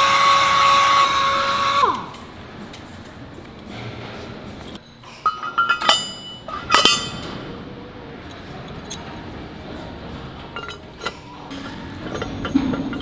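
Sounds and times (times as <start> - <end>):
metal parts clinking: 5.0 - 7.4, 10.6 - 13.0.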